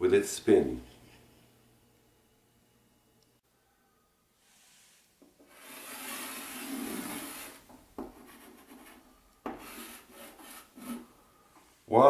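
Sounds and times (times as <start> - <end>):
chalk scraping on blackboard: 4.8 - 11.1
chalk tapping on board: 7.6 - 11.0.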